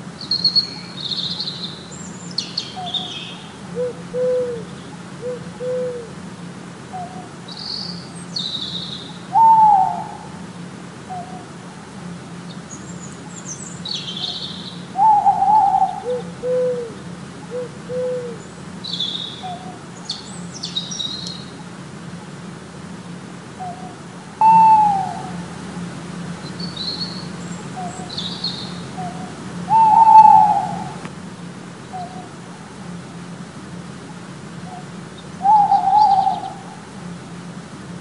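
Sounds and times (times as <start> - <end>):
owl hooting: 0.2 - 6.2, 6.9 - 10.4, 11.0 - 11.6, 13.7 - 21.6, 23.6 - 25.6, 26.6 - 31.0, 31.9 - 32.4, 34.6 - 36.9.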